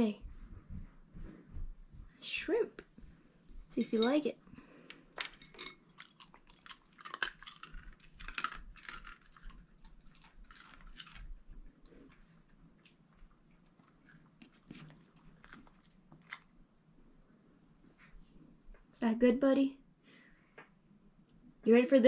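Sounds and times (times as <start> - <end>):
dog chewing crunches: 5.4 - 16.5.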